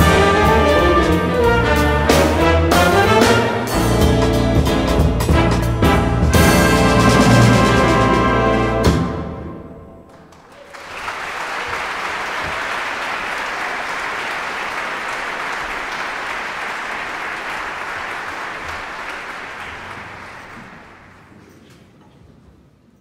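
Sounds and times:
audience applauding: 10.1 - 21.5.

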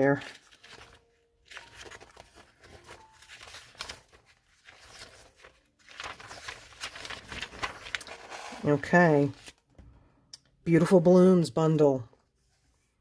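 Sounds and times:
paper pages rustling: 0.0 - 9.7.

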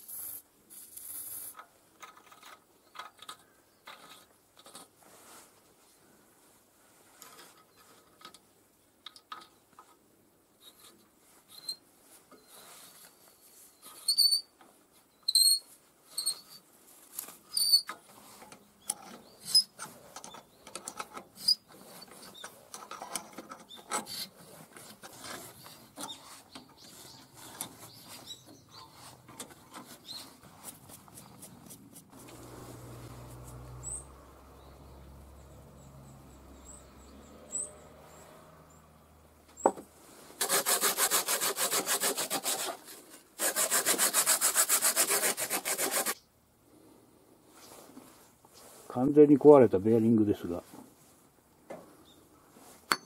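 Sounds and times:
bolt squeaking: 18.8 - 24.4.

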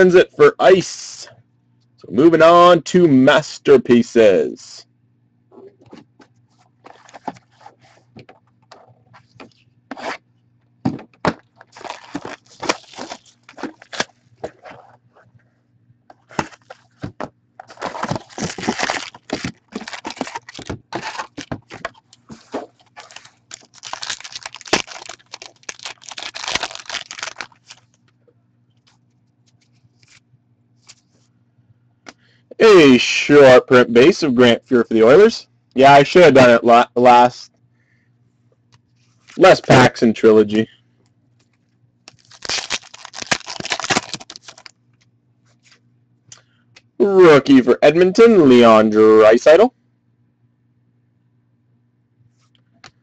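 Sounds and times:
cardboard and foil tearing: 11.7 - 14.2, 17.6 - 28.0, 42.1 - 44.7.

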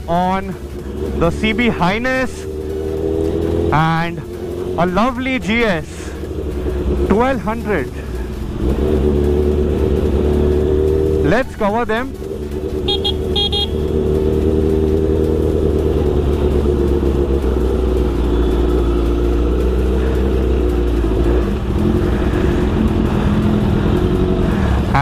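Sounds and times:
motorcycle engine running: 0.0 - 25.0
motorcycle horn beeps: 12.9 - 13.8.

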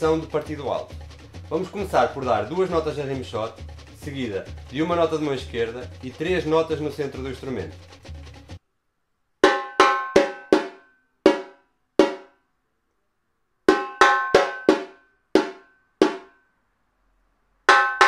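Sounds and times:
samba drum played with stick and hand: 0.0 - 8.6, 9.4 - 12.2, 13.7 - 16.3.

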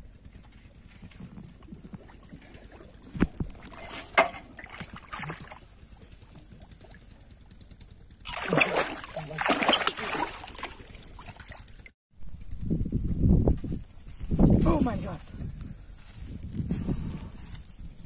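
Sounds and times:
fish splashing in shallow water: 1.5 - 7.5, 8.2 - 12.0.

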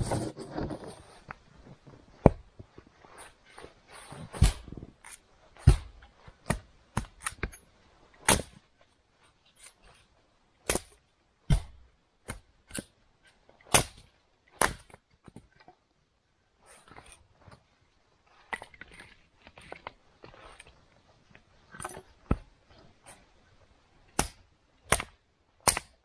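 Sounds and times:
axe chopping firewood: 4.3 - 7.6, 8.2 - 8.6, 10.6 - 13.0, 13.6 - 15.0, 24.1 - 26.0.

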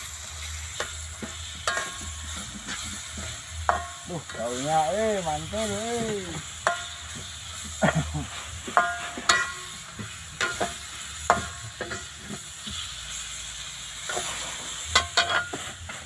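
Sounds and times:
frying sizzle: 0.0 - 16.0
metal spoon scraping in wok: 0.1 - 4.6, 8.6 - 16.0
spoon clinking against pan: 8.7 - 9.7, 14.9 - 15.6.

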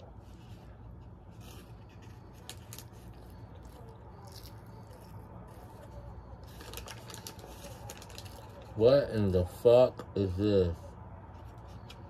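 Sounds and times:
person chewing food: 1.8 - 5.9.

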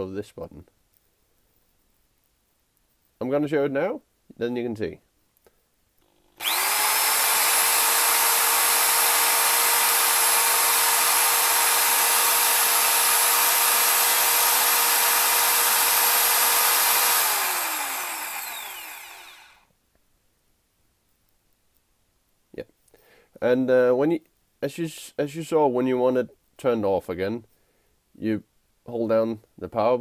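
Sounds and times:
hammer drill motor whining: 6.0 - 19.6.

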